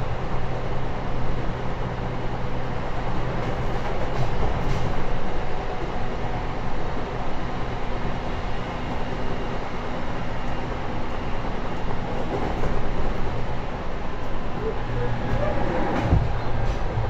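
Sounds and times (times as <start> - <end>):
train wheels rumbling: 0.0 - 17.0.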